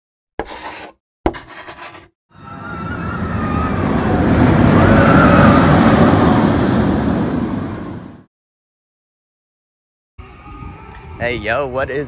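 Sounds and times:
rushing rumbling noise: 2.8 - 8.3.

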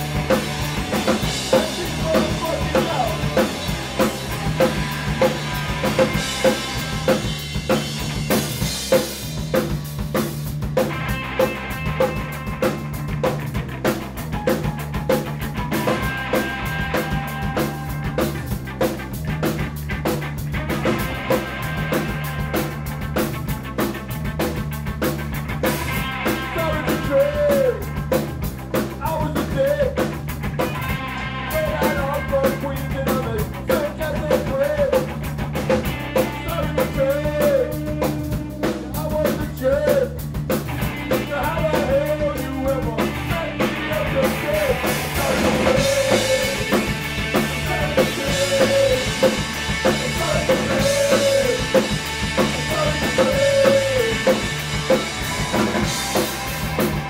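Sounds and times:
drum fills: 0.0 - 57.0
rock band playing: 0.0 - 57.0
person singing: 26.5 - 27.9, 41.1 - 54.6.

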